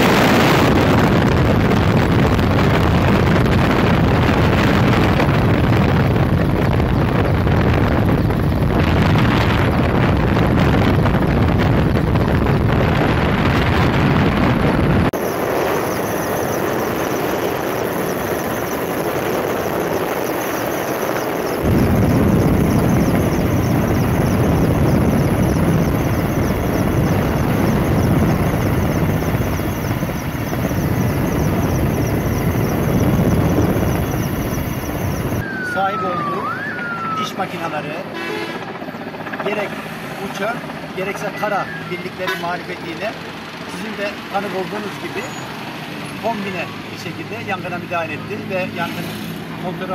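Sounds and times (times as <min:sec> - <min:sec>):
wind buffeting microphone: 0:00.0 - 0:37.5
aircraft engine drone: 0:00.0 - 0:48.8
fast high-pitched ticking: 0:15.2 - 0:35.4.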